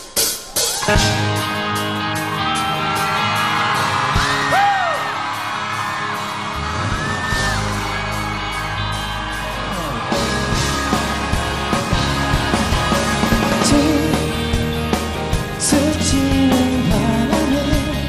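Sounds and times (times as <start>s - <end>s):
audience screaming and cheering: 0.0s - 18.0s
live band playing slow song: 0.0s - 18.0s
bass line: 6.4s - 18.0s.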